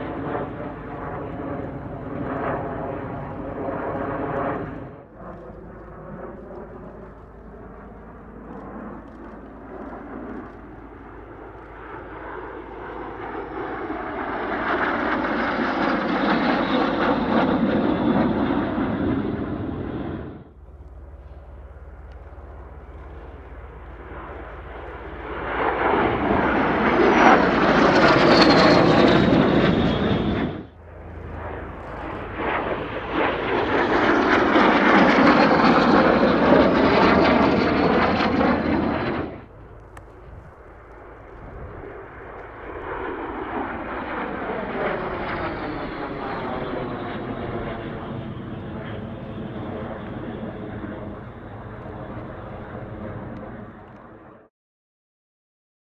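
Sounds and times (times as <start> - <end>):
jet engines flying by: 0.0 - 54.5.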